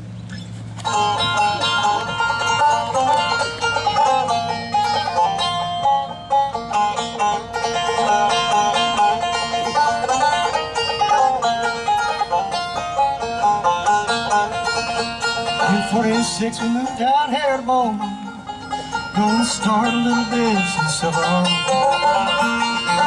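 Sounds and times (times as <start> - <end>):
bluegrass band playing: 0.6 - 23.0
banjo picking fast notes: 0.8 - 23.0.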